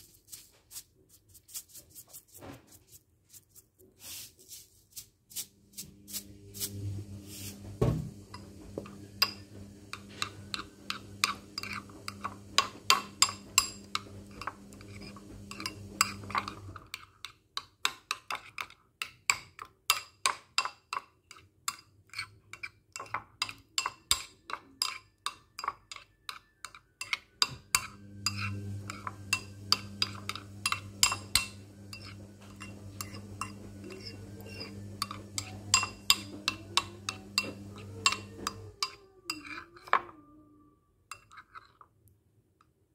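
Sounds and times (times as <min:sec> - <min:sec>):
spoon clinking against ceramic bowl: 0:08.3 - 0:40.1, 0:41.1 - 0:41.9
low steady hum: 0:27.7 - 0:41.2.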